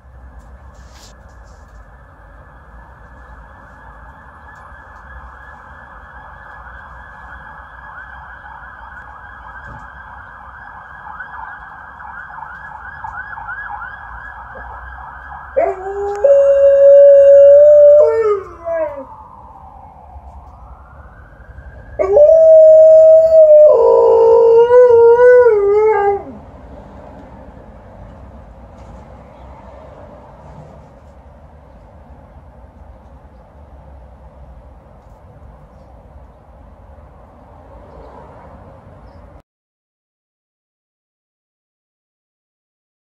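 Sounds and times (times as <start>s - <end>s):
dog howling: 15.6s - 19.1s.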